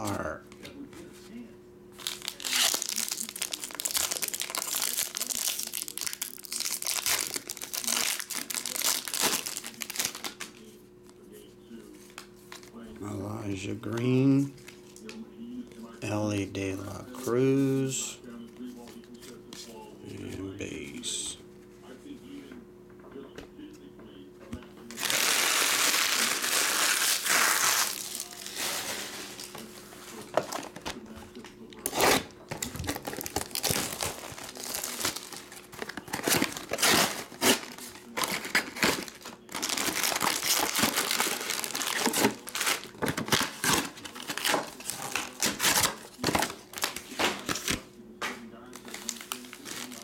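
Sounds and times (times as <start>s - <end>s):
wrapping crinkling and tearing: 2.0s - 10.7s, 24.9s - 47.8s, 48.6s - 50.0s.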